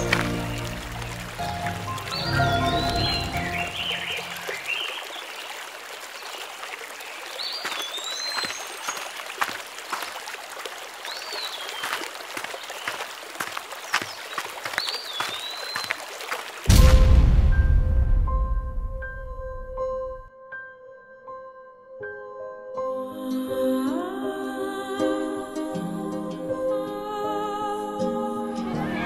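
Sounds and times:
water trickling and splashing: 0.0 - 17.7.

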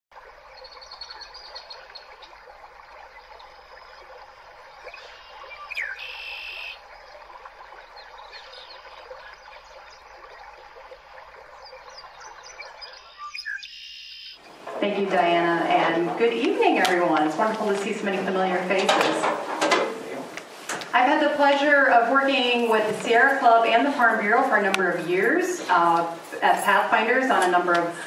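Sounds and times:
chorus of small chirping calls: 5.0 - 6.8.

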